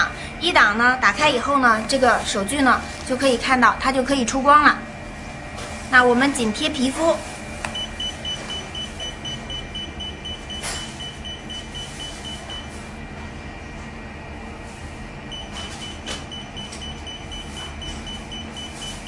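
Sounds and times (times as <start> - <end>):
machine hum: 0.0 - 19.0
rapid high beeping: 7.8 - 12.7, 15.3 - 19.0.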